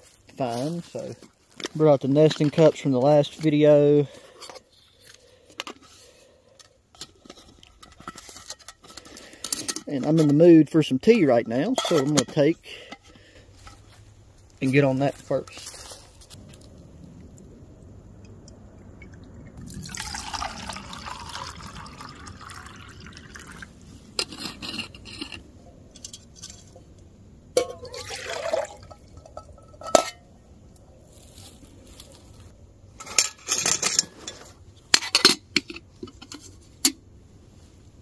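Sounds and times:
metal cups clinking: 0:11.5 - 0:13.8, 0:19.8 - 0:25.4, 0:27.6 - 0:30.2
fuel pouring into stove: 0:18.4 - 0:24.0, 0:27.6 - 0:29.7.

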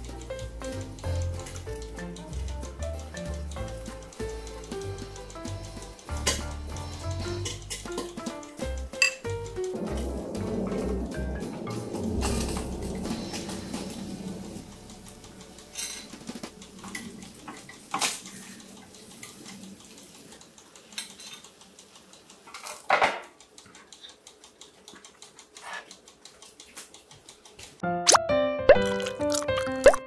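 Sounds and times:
metal tongs clicking on grill rack: 0:00.0 - 0:11.0, 0:11.6 - 0:27.6
fish sizzling on grill: 0:00.0 - 0:23.0.

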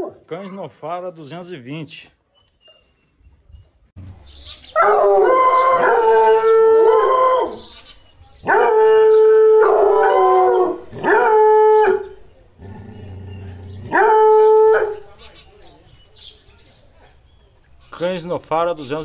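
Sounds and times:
hound baying: 0:04.7 - 0:07.7, 0:08.4 - 0:12.2, 0:12.8 - 0:15.1.

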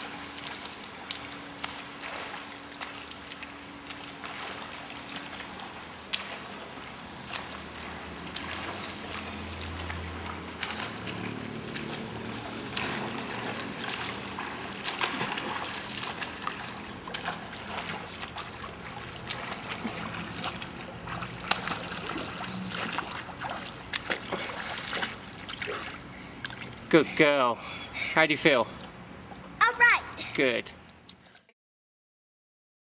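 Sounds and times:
steady water wash: 0:00.0 - 0:31.4
swimmer splashing in pool: 0:01.6 - 0:27.1.

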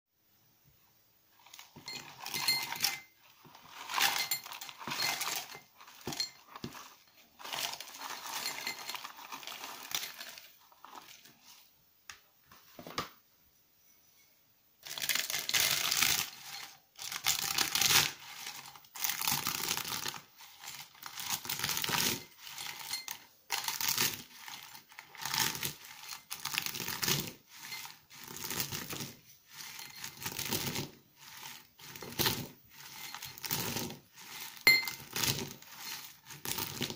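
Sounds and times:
soap shards clattering into metal mortar: 0:01.5 - 0:11.0, 0:14.8 - 0:36.9
pestle crunching soap: 0:14.8 - 0:36.9.

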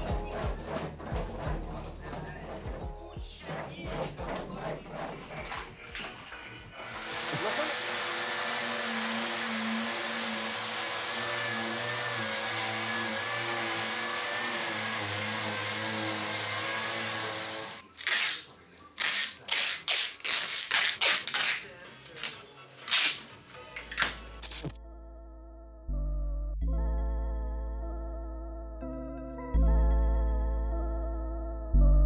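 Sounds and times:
orbital sander running: 0:06.8 - 0:17.8.

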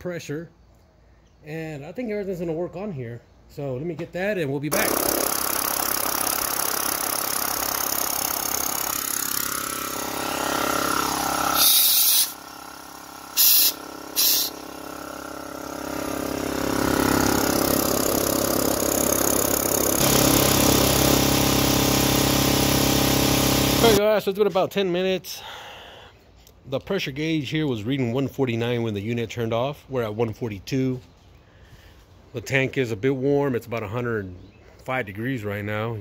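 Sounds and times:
air compressor running: 0:04.7 - 0:24.0
short loud noise bursts: 0:10.2 - 0:12.4, 0:13.3 - 0:14.7.

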